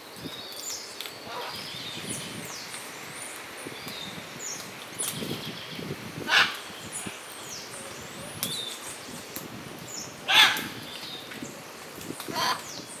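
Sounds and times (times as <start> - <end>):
small birds chirping and whistling: 0.2 - 13.0
macaw squawks: 10.3 - 10.7.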